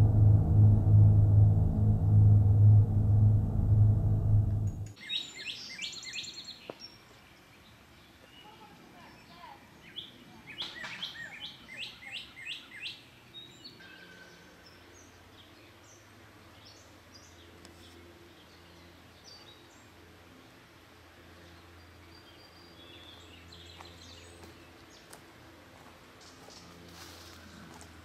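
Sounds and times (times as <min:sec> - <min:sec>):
low outdoor hum: 0:00.0 - 0:05.2, 0:13.2 - 0:28.0.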